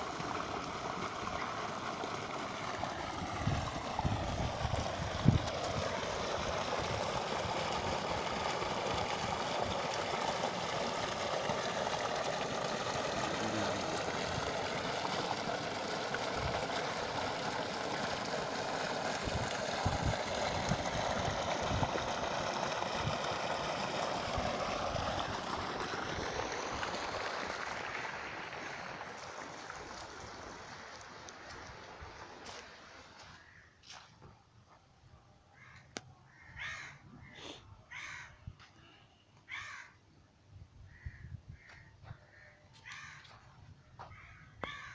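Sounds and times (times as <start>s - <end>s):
water gushing into a pool: 0.0s - 33.3s.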